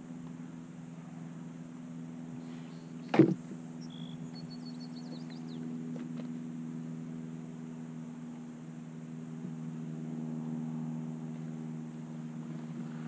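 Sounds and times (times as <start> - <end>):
steady low hum: 0.0 - 13.0
faint high chirps: 3.8 - 5.6.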